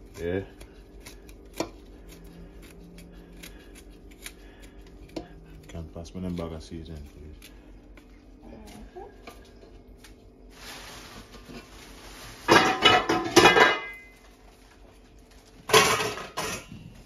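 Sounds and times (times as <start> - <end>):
metal pots clattering: 12.4 - 14.2, 15.7 - 16.9.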